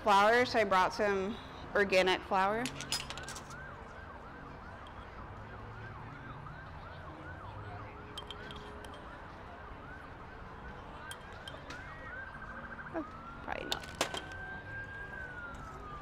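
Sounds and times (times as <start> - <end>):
faint siren yelping: 3.2 - 16.0.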